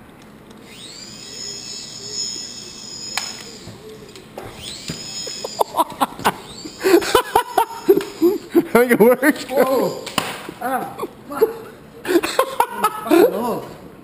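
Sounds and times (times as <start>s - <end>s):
toy helicopter rotor whine: 0.6s - 8.4s.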